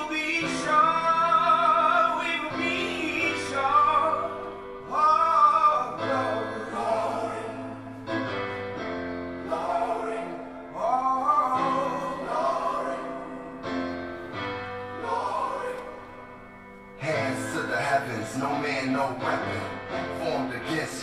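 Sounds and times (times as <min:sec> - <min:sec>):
man singing lead: 0:00.0 - 0:08.1, 0:09.5 - 0:13.6, 0:17.0 - 0:21.0
choir singing held notes: 0:00.0 - 0:21.0.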